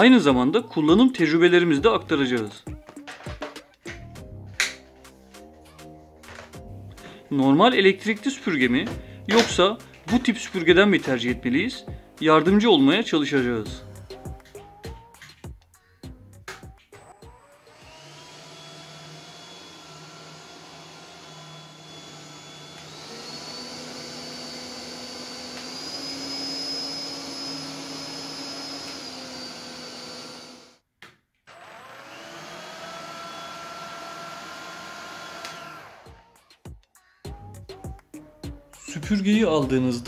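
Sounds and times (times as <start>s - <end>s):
stick vacuum whining: 6.2s - 11.3s, 17.0s - 30.8s, 31.5s - 36.4s.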